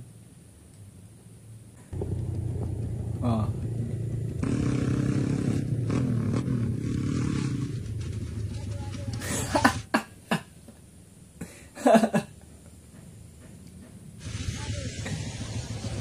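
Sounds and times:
small motorcycle engine running: 1.9 - 9.8, 14.2 - 16.0
man laughing: 9.2 - 10.6, 11.4 - 12.4.

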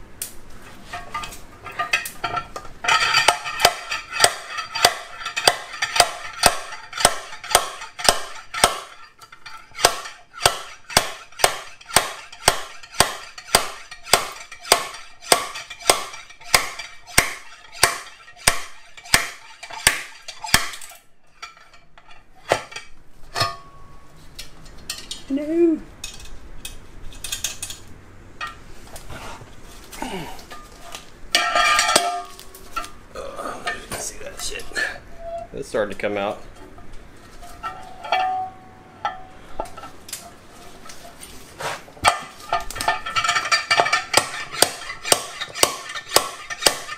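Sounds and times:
metal clatter: 0.8 - 24.0, 30.5 - 33.0, 36.4 - 41.4, 42.0 - 46.9
slide hammer metallic clanking: 0.9 - 24.0, 31.3 - 33.0, 37.4 - 40.3, 42.0 - 46.9.

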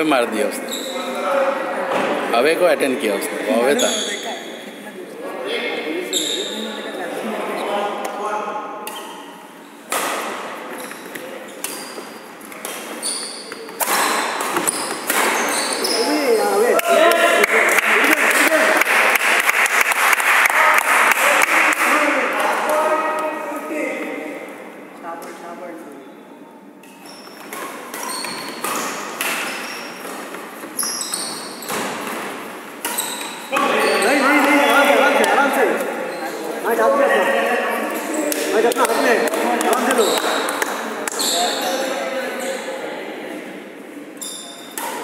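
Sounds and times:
shoes squeaking on wooden floor: 0.6 - 1.2, 10.7 - 16.7, 26.9 - 36.6, 39.6 - 40.5
racket hitting shuttlecock: 27.4 - 30.4.

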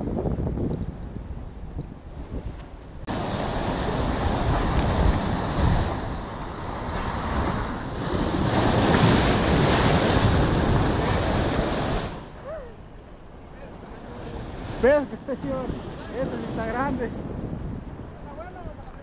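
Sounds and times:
wind buffeting microphone: 0.0 - 19.0
surf splashing over rocks: 3.1 - 12.4.

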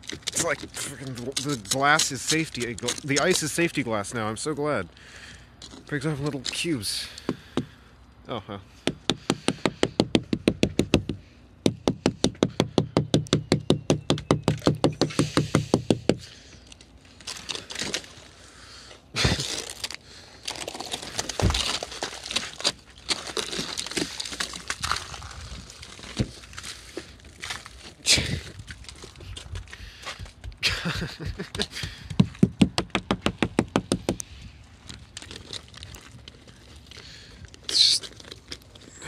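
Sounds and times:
ice crunching and scraping: 0.0 - 7.3, 16.2 - 30.4, 34.2 - 39.0.

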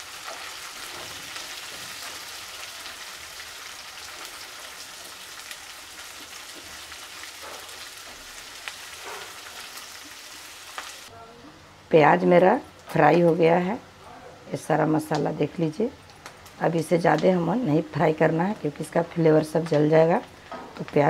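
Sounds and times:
onions sizzling in oil: 0.0 - 11.1.

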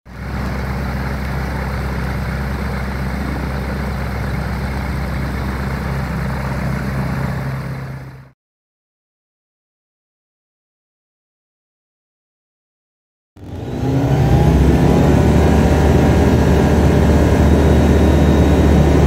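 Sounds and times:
propeller engine idling: 0.1 - 8.3, 13.4 - 19.0.

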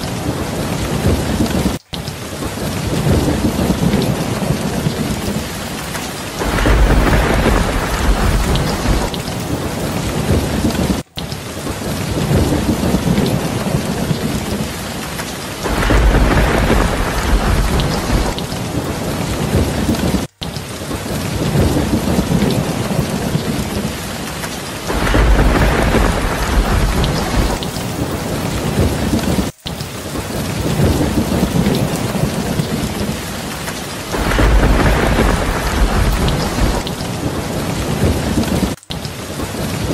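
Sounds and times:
steady rain: 0.0 - 39.9
thunder rumbling: 0.0 - 39.9.

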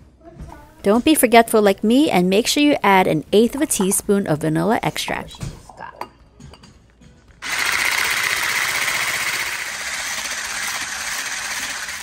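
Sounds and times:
electric whisk running: 7.4 - 12.0.

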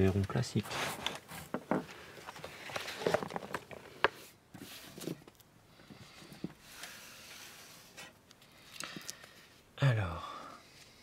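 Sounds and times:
paper rustling: 2.2 - 5.3.

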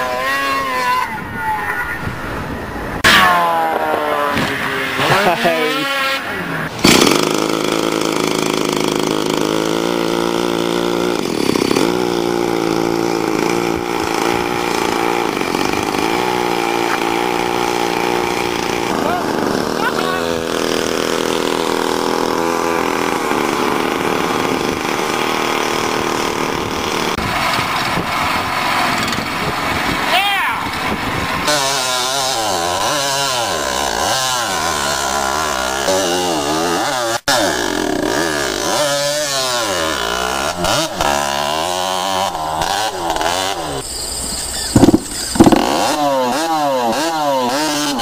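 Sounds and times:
off-road vehicle engine running: 3.1 - 48.0.

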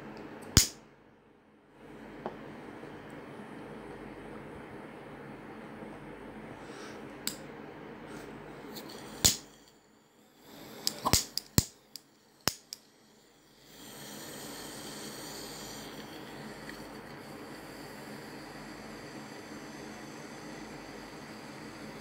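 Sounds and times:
steady hiss: 8.0 - 22.0.

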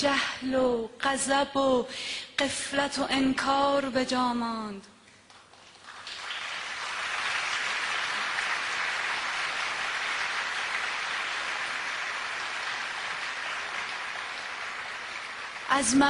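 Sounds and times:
audience applauding: 5.3 - 16.0.

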